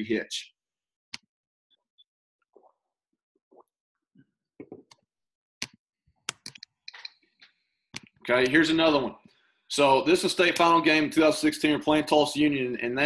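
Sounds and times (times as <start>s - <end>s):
computer mouse clicks: 5.6s - 7.2s.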